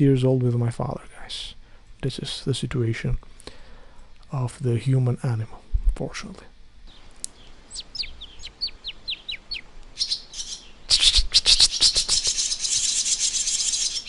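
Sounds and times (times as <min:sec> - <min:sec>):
swallows chirping and twittering: 0:06.9 - 0:14.0.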